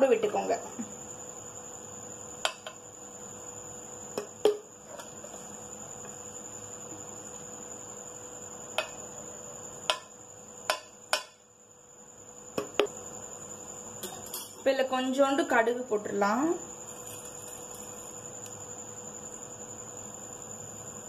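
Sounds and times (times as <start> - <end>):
background hiss: 0.0 - 21.0
spoon tapping on frying pan: 8.7 - 9.0, 9.9 - 10.1, 10.7 - 11.4.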